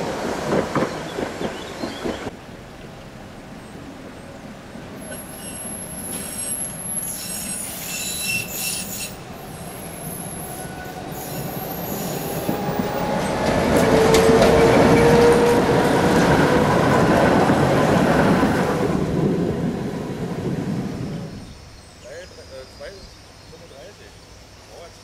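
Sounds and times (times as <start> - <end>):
tram passing by: 0.0 - 21.8
tram wheels squealing: 5.0 - 18.9.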